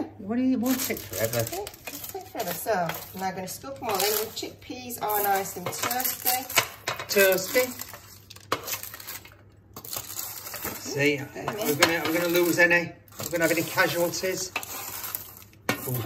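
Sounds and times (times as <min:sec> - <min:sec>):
pans and utensils clattering: 0:05.0 - 0:14.8.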